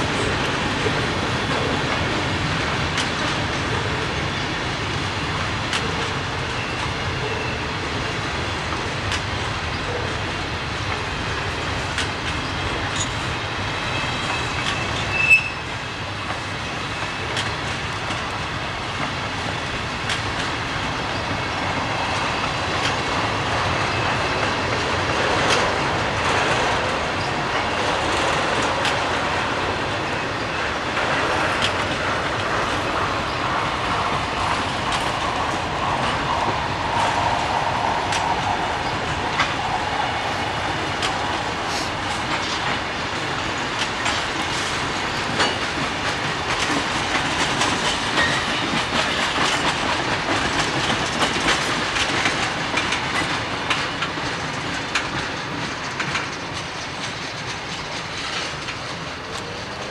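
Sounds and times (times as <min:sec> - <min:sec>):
train wheels clicking over rail joints: 0:00.0 - 0:59.9
train wheel squeal: 0:05.7 - 0:07.8, 0:12.4 - 0:17.7, 0:20.9 - 0:29.0, 0:47.4 - 0:59.9.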